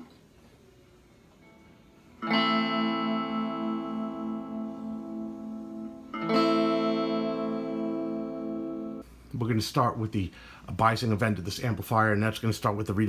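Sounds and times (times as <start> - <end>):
electric guitar chord ringing: 1.4 - 9.0.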